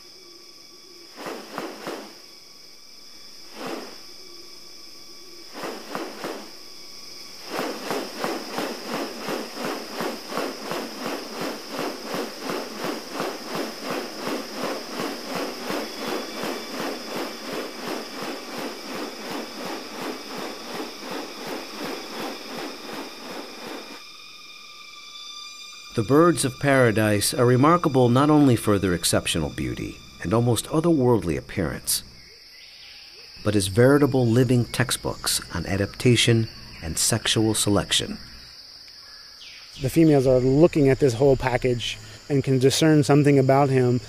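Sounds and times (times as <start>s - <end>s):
high insect drone: 0.0s - 44.0s
bird wing swishes: 1.1s - 2.3s, 3.4s - 4.1s, 5.5s - 6.6s, 7.2s - 24.0s.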